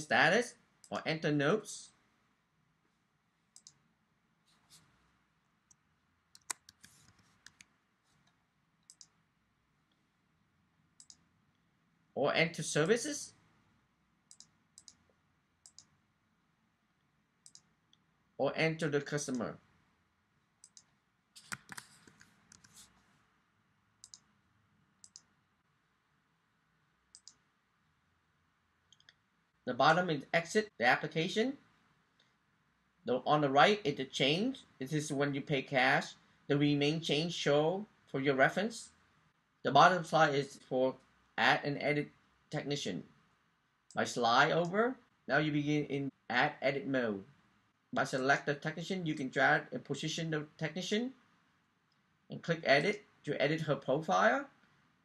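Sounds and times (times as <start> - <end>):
computer mouse clicks: 3.5 - 3.8, 5.7 - 9.2, 11.0 - 11.2, 14.3 - 15.9, 17.4 - 18.0, 20.6 - 23.0, 24.0 - 24.3, 25.0 - 25.3, 27.1 - 27.4.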